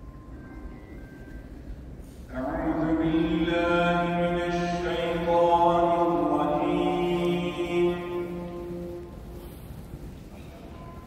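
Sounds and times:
man chanting a recitation: 2.3 - 9.1.

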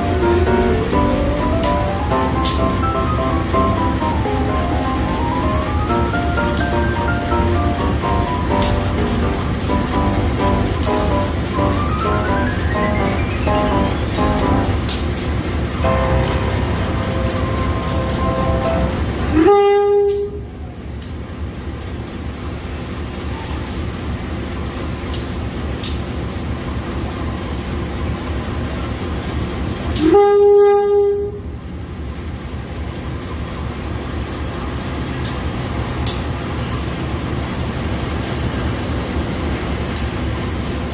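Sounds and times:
train wheels rumbling on rail: 0.0 - 40.9
train horn blast: 15.9 - 20.5, 30.0 - 31.6.

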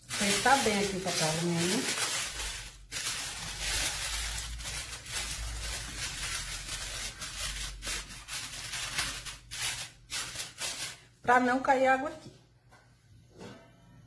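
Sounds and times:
aluminium foil crinkling: 0.0 - 11.2.

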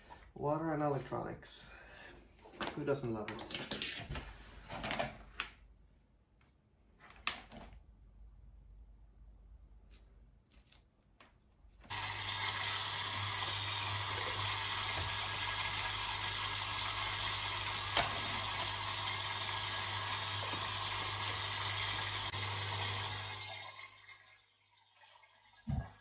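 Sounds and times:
pump humming: 11.9 - 24.3.

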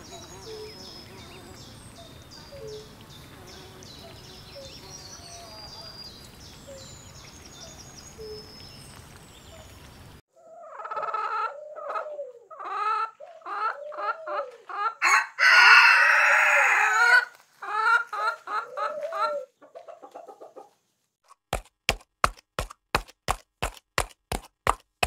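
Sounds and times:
insects buzzing: 0.0 - 10.2
birds calling: 0.0 - 20.7
hens clucking: 10.4 - 20.8
rooster crowing: 15.0 - 17.3.

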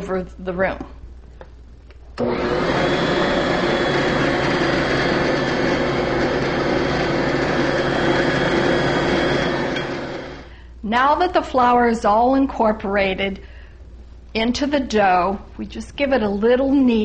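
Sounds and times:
stand mixer motor humming: 2.2 - 10.5.

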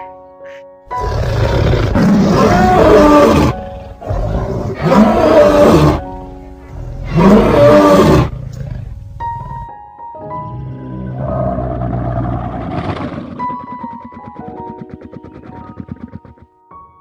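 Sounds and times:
background music: 0.0 - 17.0
lion roaring: 0.9 - 9.7, 10.5 - 13.4.

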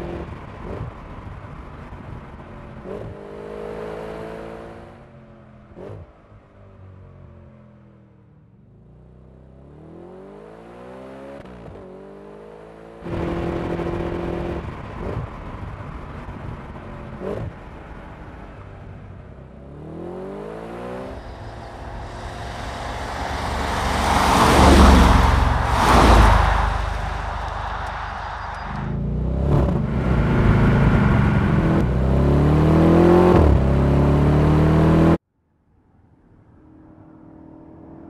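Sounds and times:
car engine accelerating: 16.7 - 35.2
engine revving: 19.6 - 35.2.

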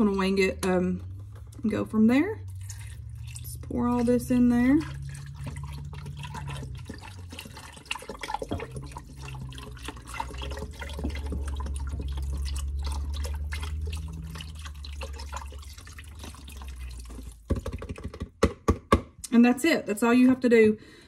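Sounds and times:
low steady hum: 0.0 - 17.5
broth glugging and splashing: 0.0 - 18.4.

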